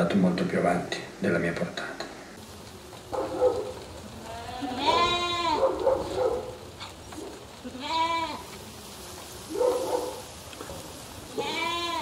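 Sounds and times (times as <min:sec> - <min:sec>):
sheep bleating: 0:04.2 - 0:05.8, 0:07.6 - 0:08.6, 0:11.3 - 0:12.0.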